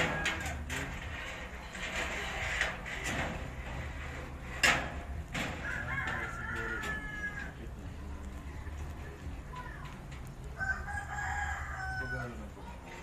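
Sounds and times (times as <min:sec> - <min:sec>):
metal oven racks clinking: 0:00.0 - 0:07.5.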